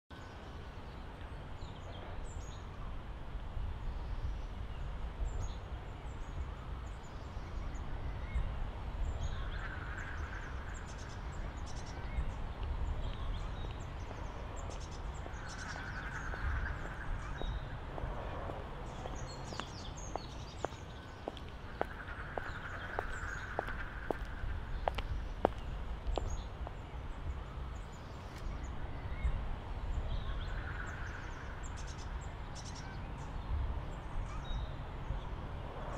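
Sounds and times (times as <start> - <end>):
steady low rumble: 1.6 - 32.3
small birds chirping: 3.9 - 35.9
footsteps on a wet path: 12.5 - 26.8
ducks calling: 14.7 - 25.6.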